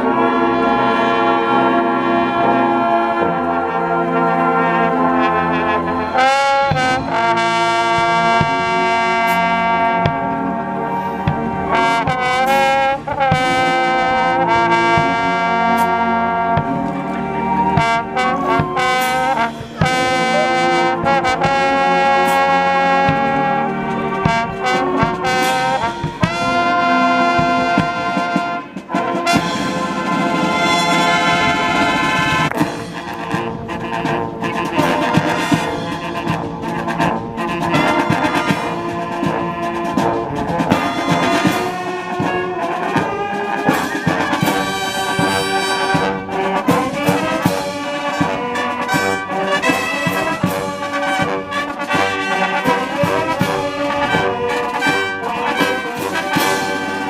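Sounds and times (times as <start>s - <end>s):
marching band playing: 0.0s - 57.0s
drum hits: 6.6s - 10.5s, 11.2s - 17.0s, 17.8s - 23.6s, 24.2s - 37.1s.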